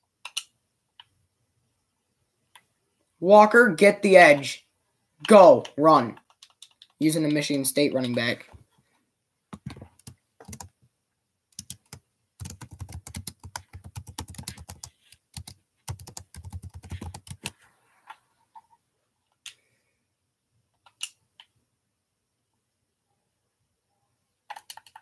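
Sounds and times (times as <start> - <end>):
computer keyboard typing: 6.1 - 7.0, 9.6 - 10.7, 11.6 - 17.5, 24.5 - 25.0.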